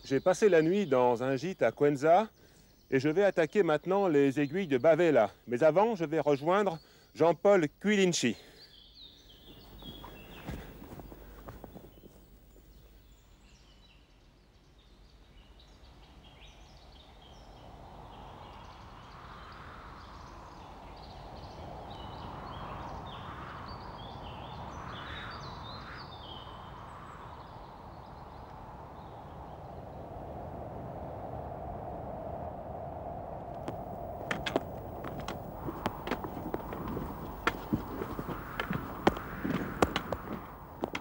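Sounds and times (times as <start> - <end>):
background hiss: 0.0 - 13.6, 33.5 - 41.0
small birds chirping: 8.4 - 14.0, 33.6 - 41.0.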